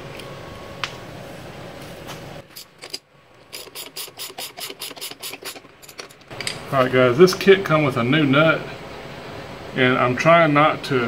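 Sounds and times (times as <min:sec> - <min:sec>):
hand ratchet clicking: 0:02.8 - 0:06.3.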